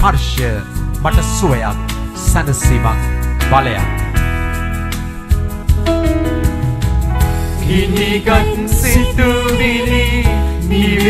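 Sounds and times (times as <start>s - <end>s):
instrumental backing: 0.0s - 11.0s
person singing hymn: 7.6s - 11.0s.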